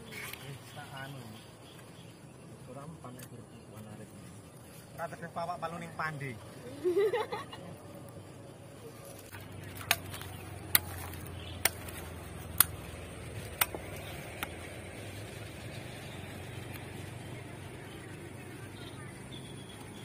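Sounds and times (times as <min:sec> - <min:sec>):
sickle blade chopping coconut: 0:09.3 - 0:14.6.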